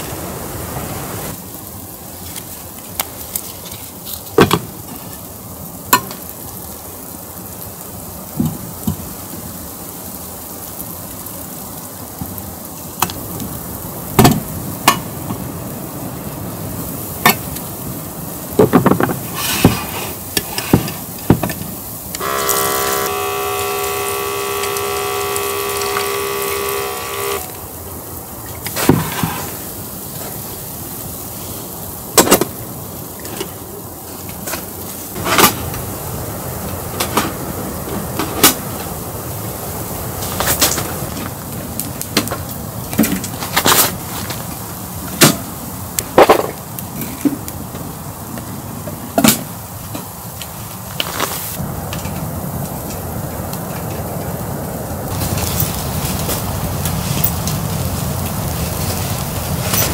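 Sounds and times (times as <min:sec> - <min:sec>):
steady hiss: 0:00.0 - 0:59.9
steady ringing tone: 0:22.2 - 0:27.6.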